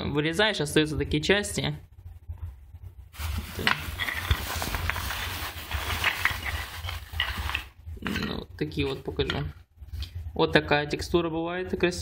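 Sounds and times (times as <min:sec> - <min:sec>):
plastic bags rustling: 0:03.1 - 0:07.8.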